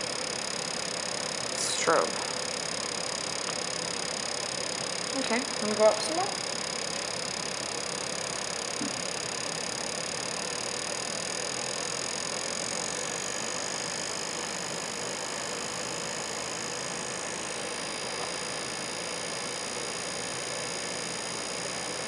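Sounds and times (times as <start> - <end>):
faint high whines: 0.0 - 22.0
lab equipment whirring hiss: 0.0 - 22.0.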